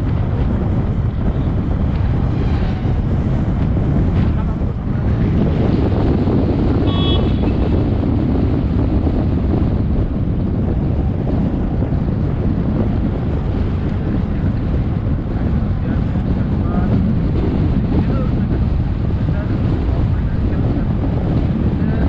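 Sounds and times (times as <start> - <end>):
auto rickshaw rumbling: 0.0 - 22.0
wind buffeting the microphone: 0.0 - 22.0.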